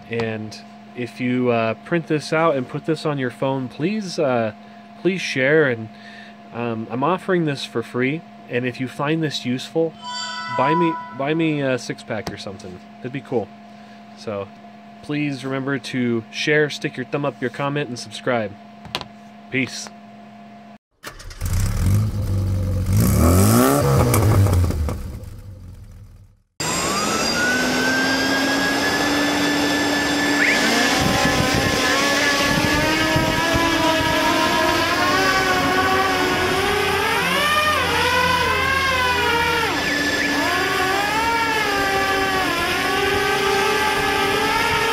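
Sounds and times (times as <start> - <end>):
electric fans running: 0.0 - 9.7, 26.6 - 44.9
loud pitch-swinging sound: 9.9 - 11.8
motor pitch rising and falling: 10.0 - 11.6, 26.6 - 44.9.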